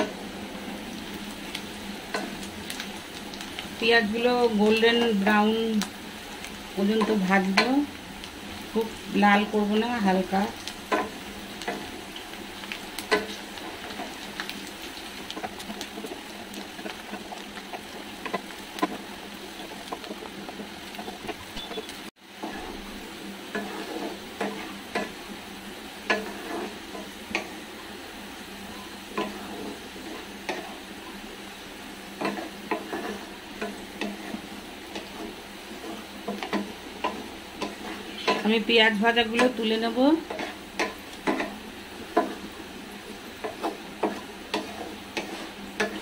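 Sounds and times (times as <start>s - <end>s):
onions sizzling in hot oil: 0.0s - 46.0s
wooden spatula scraping a pan: 12.7s - 21.6s, 23.5s - 25.2s, 26.0s - 27.6s, 29.1s - 30.9s, 32.0s - 46.0s.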